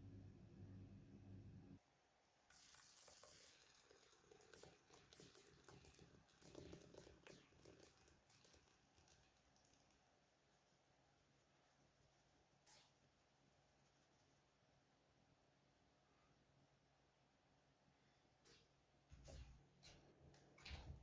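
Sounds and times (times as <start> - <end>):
thick liquid pouring into metal bowl: 2.5 - 10.2.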